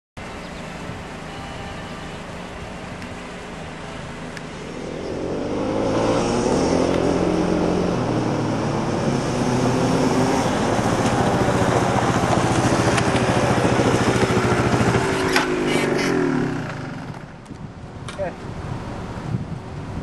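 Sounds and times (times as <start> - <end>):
quad bike engine revving: 4.7 - 17.4.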